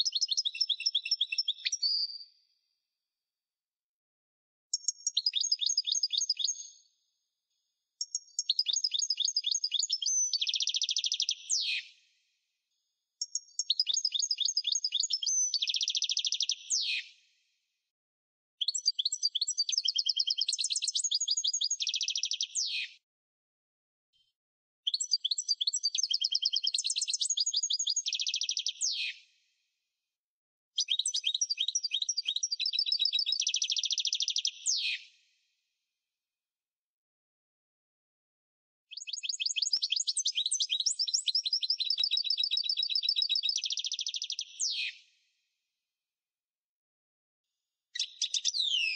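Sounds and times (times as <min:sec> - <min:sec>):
songbird trilling: 0:38.9 - 0:44.9.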